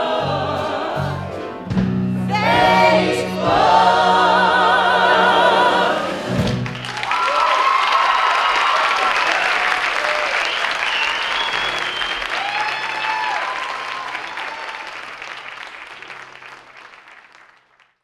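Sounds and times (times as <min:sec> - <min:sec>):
audience applauding and cheering: 0:06.3 - 0:18.0
shouts and whoops: 0:07.0 - 0:10.5, 0:12.2 - 0:15.0.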